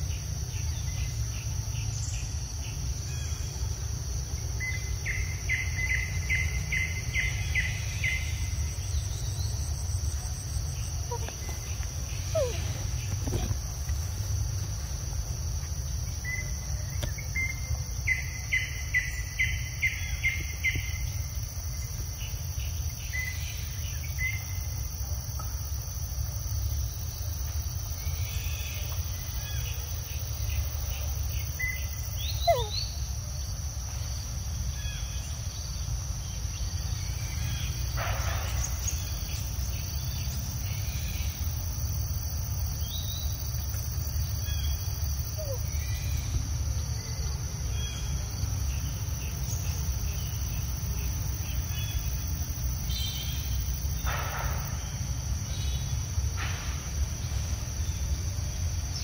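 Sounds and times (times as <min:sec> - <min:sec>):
high insect drone: 0:00.0 - 0:59.0
bird calls: 0:04.6 - 0:14.3, 0:27.9 - 0:33.0, 0:42.8 - 0:46.5.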